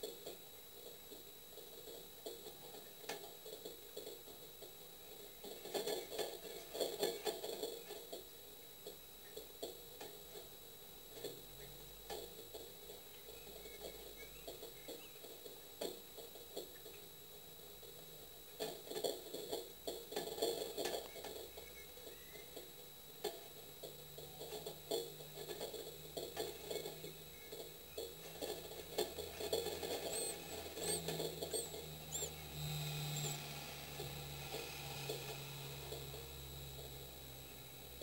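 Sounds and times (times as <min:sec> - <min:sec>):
faint steady hum: 0:00.0 - 0:38.0
chicks rustling in nest: 0:26.4 - 0:36.4.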